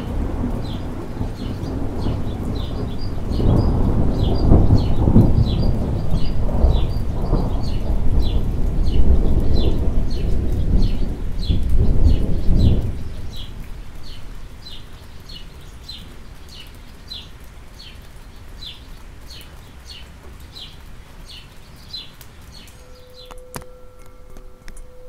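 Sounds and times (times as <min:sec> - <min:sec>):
thunder rumbling: 0:00.0 - 0:14.8
steady rain: 0:00.0 - 0:25.0
bird chirping: 0:18.6 - 0:25.0
singing bowl ringing: 0:22.8 - 0:25.0.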